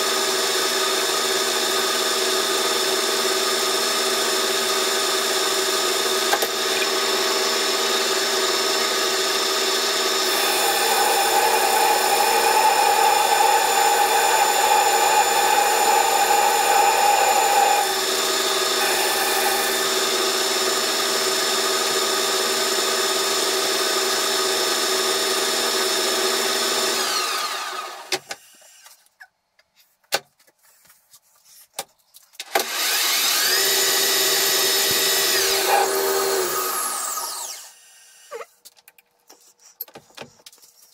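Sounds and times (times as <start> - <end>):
lathe motor whine: 0.0 - 28.1, 32.6 - 38.3
lathe tool cutting steel: 0.4 - 28.1, 32.6 - 37.8.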